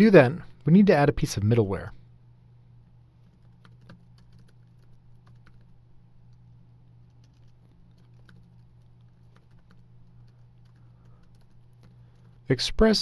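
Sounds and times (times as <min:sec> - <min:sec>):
steady low hum: 0:00.0 - 0:13.0
keyboard typing: 0:03.2 - 0:12.5.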